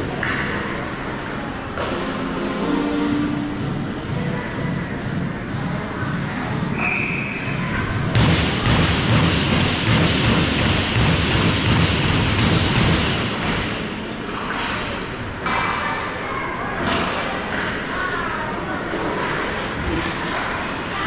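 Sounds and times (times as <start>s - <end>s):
short high tone: 2.1s - 3.9s.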